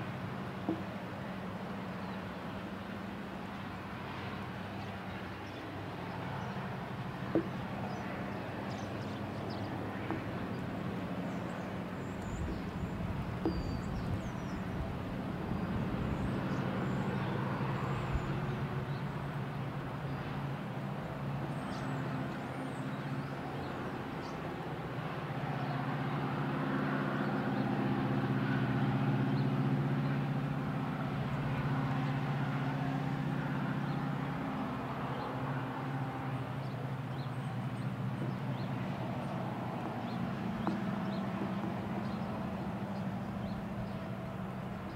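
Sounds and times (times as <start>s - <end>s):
distant diesel locomotives droning: 0.0s - 44.9s
car crossing tracks: 31.0s - 44.9s.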